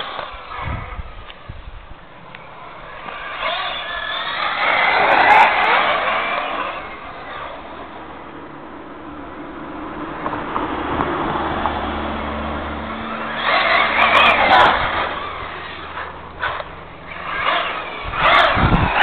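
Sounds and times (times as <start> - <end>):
rc car motor whirring: 0.0 - 8.1, 12.8 - 19.0
tyre noise on asphalt: 0.0 - 19.0.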